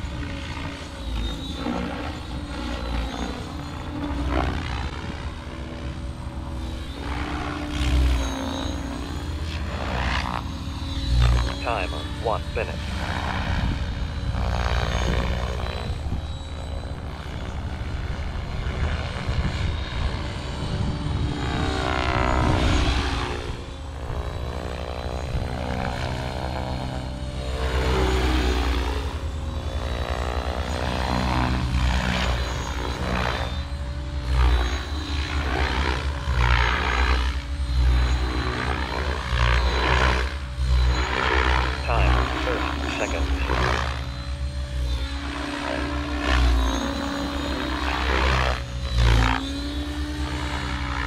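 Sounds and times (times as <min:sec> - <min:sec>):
model helicopter rotor whine: 0:00.0 - 0:51.0.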